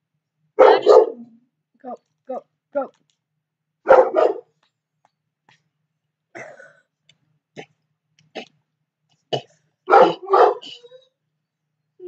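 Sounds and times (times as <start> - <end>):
dog barking: 0.6 - 1.4, 3.8 - 4.5, 9.9 - 11.0.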